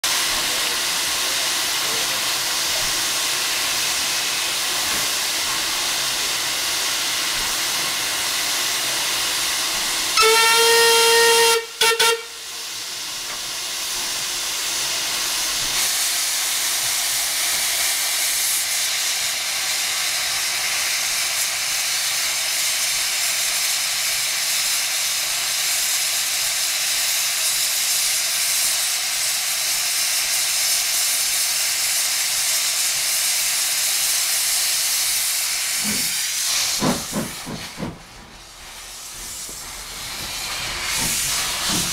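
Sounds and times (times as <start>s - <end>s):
steam locomotive hissing: 0.0s - 41.9s
steam whistle blast: 10.1s - 12.5s.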